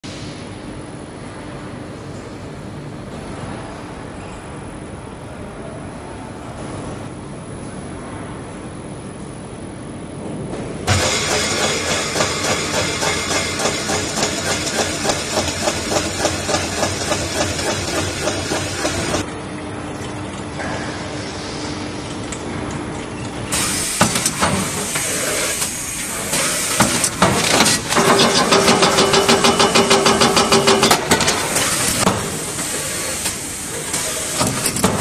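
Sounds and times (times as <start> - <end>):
machine hum with low tone: 0.0 - 35.0
fast rhythmic machine clatter: 10.9 - 19.2, 26.8 - 32.1
machine clattering: 10.9 - 19.2, 22.7 - 35.0
scattered machine clicks: 10.9 - 19.2.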